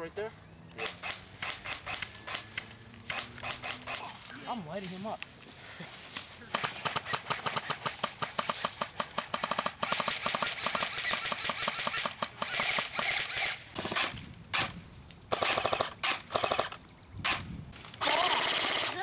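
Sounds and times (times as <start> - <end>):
airsoft rifles firing: 0.8 - 4.2, 6.4 - 14.7, 15.3 - 16.8, 18.0 - 19.0.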